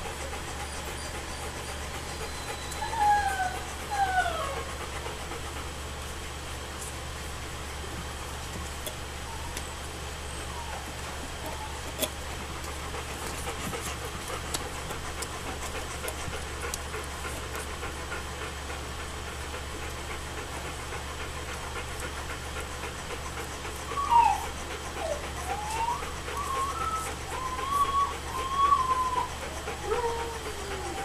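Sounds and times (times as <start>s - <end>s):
puppy whining: 0.0s - 5.4s, 9.1s - 18.5s, 23.2s - 31.0s
puppies nursing smacking: 10.8s - 31.0s.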